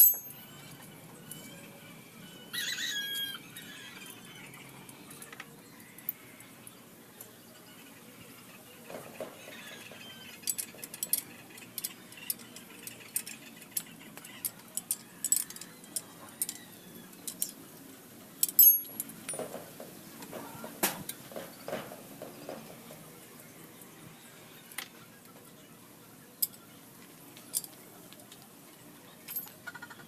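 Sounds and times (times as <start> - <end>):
small metal parts clicking: 0.0 - 1.5, 9.8 - 17.6, 18.4 - 19.5, 27.4 - 28.4, 29.3 - 29.6.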